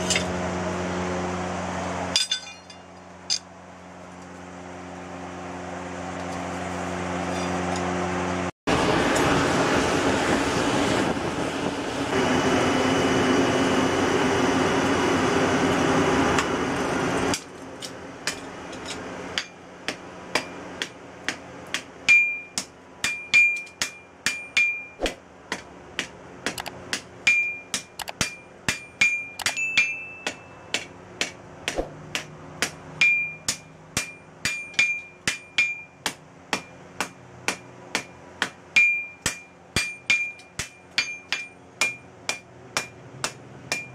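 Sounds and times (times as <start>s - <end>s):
anvil ringing: 0.0s - 0.3s, 2.1s - 3.5s, 22.1s - 25.0s, 27.2s - 30.9s, 33.0s - 36.8s, 38.8s - 43.9s
hammer striking steel on anvil: 0.0s - 0.4s, 2.1s - 3.5s, 17.3s - 43.9s.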